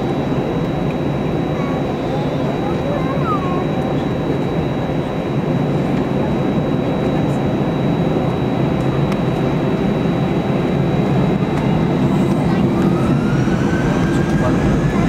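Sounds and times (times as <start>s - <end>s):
high engine whine: 0.0s - 15.0s
jet engines rumbling: 0.0s - 15.0s.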